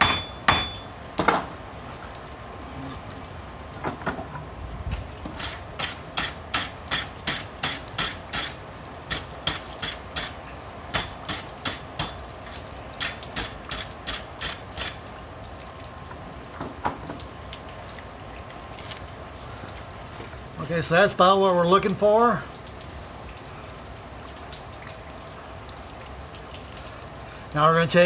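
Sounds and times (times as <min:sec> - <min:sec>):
hammer striking steel on anvil: 0:00.0 - 0:00.9, 0:11.0 - 0:12.2.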